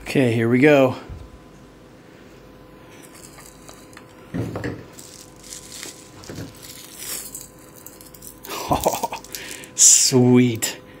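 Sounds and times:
plastic bag crinkling: 3.0s - 4.2s, 4.9s - 9.8s.

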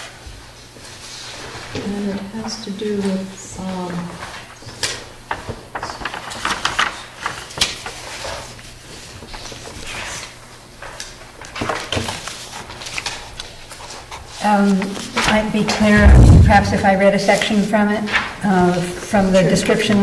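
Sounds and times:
paper rustling and shuffling: 4.0s - 10.4s, 11.0s - 15.8s.

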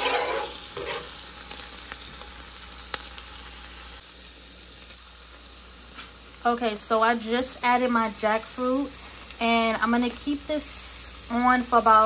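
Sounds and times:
stirring and scraping pan: 0.0s - 1.2s
vegetables sizzling in oil: 0.0s - 12.0s.

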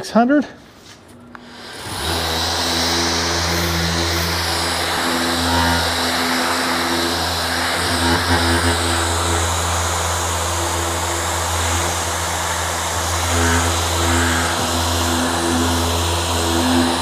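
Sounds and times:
sander humming and hissing: 1.3s - 17.0s.

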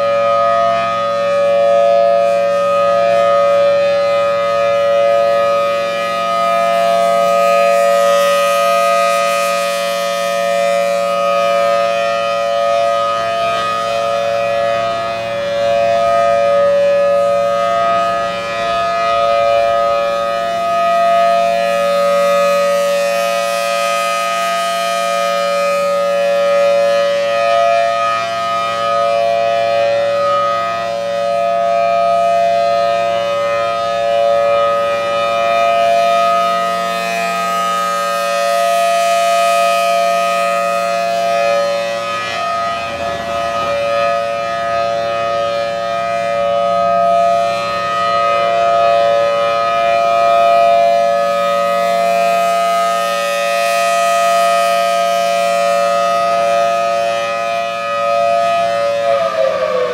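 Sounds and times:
warning siren alert tone: 0.0s - 59.9s.

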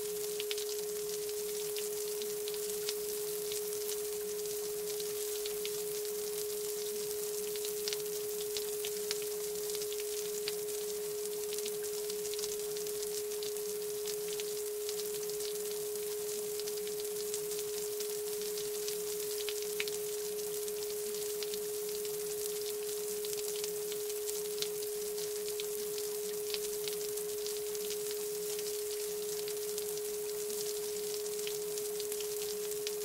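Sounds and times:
faint high hiss: 0.0s - 0.4s.

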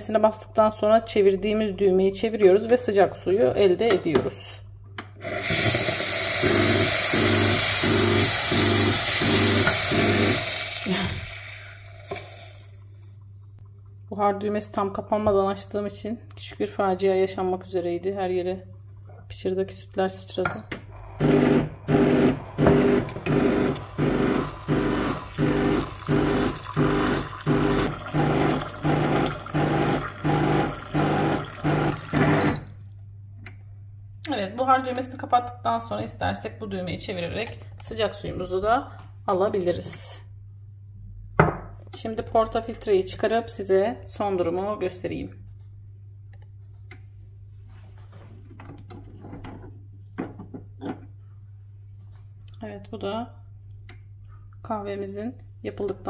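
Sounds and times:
portafilter clicks and scraping: 5.0s - 11.0s, 21.0s - 32.4s
espresso machine pump buzzing: 5.2s - 12.9s, 20.9s - 32.6s.

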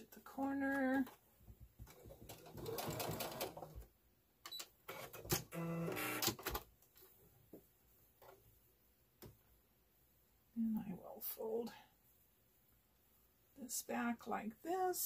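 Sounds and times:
sewing machine stitching: 2.0s - 3.8s, 4.9s - 6.6s.

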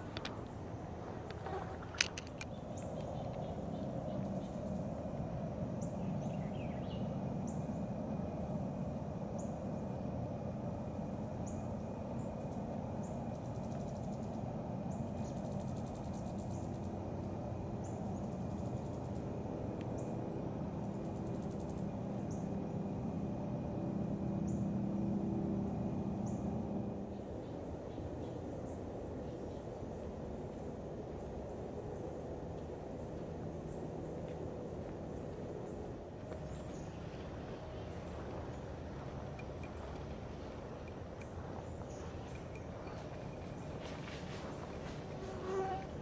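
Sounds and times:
faint high whine: 0.0s - 46.0s
low rumble: 29.9s - 46.0s.

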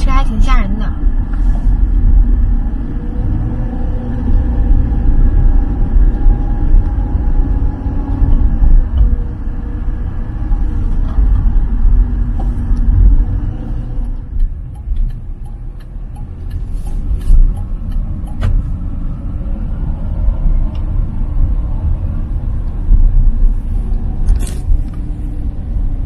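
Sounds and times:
engine and tyre rumble: 0.0s - 26.0s.

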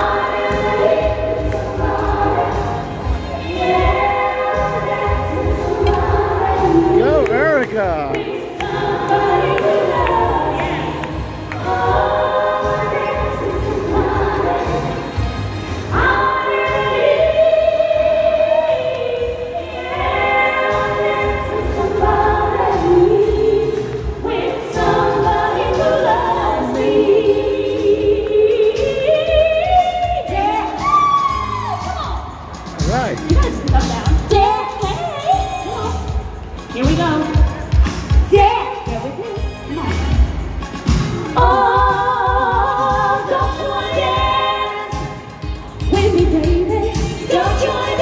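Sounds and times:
woman singing into a microphone: 0.0s - 7.4s, 8.2s - 32.4s, 33.3s - 39.0s, 41.3s - 48.0s
amplified dance music: 6.9s - 8.4s.

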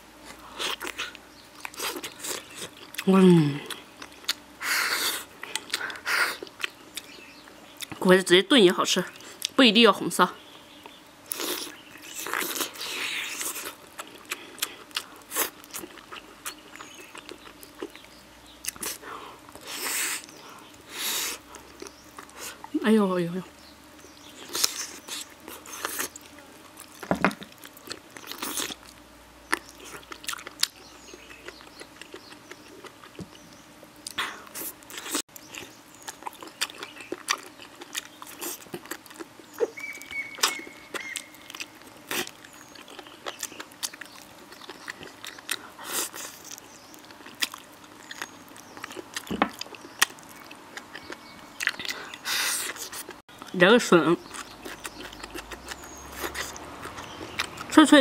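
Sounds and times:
person chewing wet mouth clicks: 0.3s - 7.2s, 10.8s - 20.4s, 34.0s - 53.5s, 54.2s - 57.7s.

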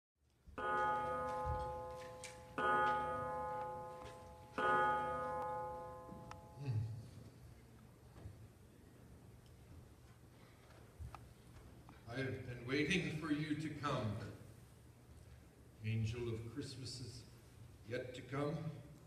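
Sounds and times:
clock bell striking: 0.6s - 6.6s.

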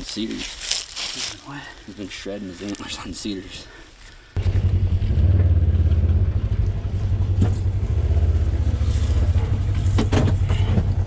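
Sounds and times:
vehicle engine idling: 4.4s - 11.0s.

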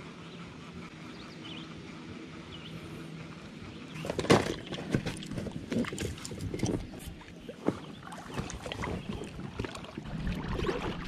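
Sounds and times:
oars clunking in locks: 4.0s - 9.9s
oars splashing water: 4.5s - 11.0s.

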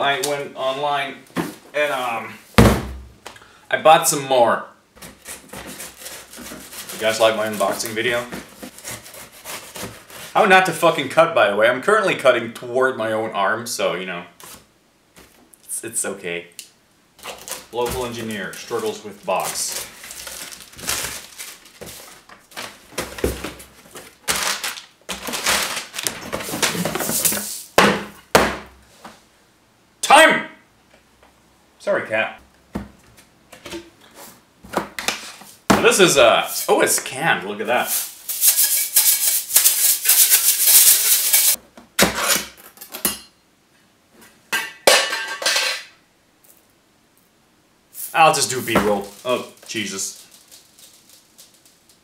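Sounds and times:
cardboard and plastic rustling: 5.0s - 10.4s, 17.2s - 27.6s, 48.0s - 52.0s
beads rattling in a metal tin: 37.9s - 41.6s, 48.0s - 52.0s.

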